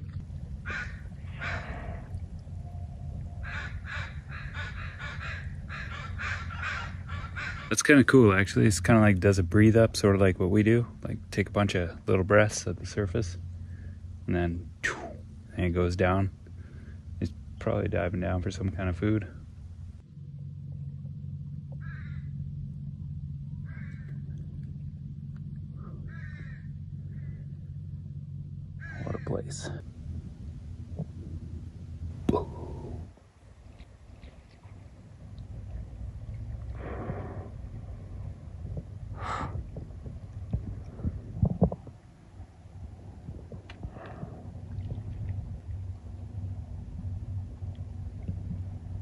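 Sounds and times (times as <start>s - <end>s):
steady low rumble: 0.0s - 49.0s
crow cawing: 0.6s - 2.0s, 3.4s - 7.7s, 21.8s - 22.3s, 23.6s - 24.2s, 26.0s - 27.5s, 28.8s - 29.4s.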